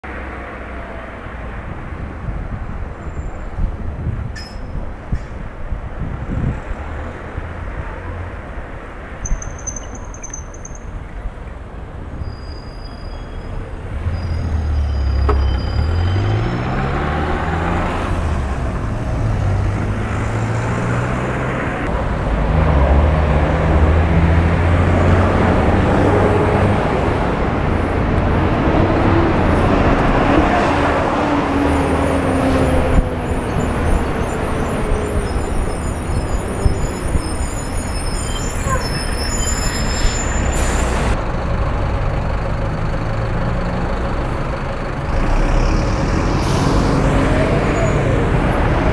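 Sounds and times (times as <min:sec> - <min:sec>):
rumble of tyres: 0:00.1 - 0:48.9
passing vehicle engines: 0:13.2 - 0:48.9.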